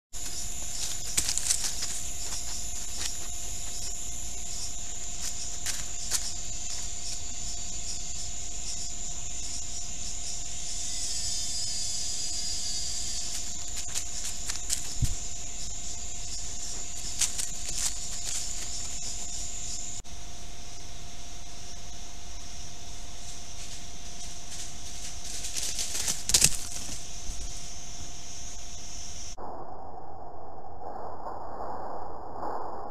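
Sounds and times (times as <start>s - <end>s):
high insect drone: 0.1s - 32.9s
footsteps crackling in dry leaves: 0.2s - 8.2s, 12.8s - 19.5s, 22.9s - 27.8s.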